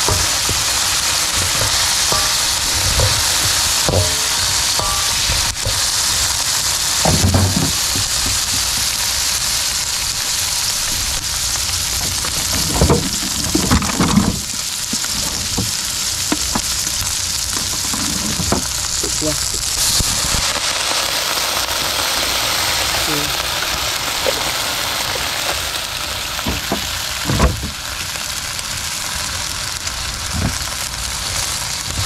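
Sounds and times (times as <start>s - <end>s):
utensil knocking and scraping pan: 0.0s - 5.9s, 7.0s - 8.9s, 17.5s - 18.8s
vegetables sizzling in oil: 0.0s - 32.0s.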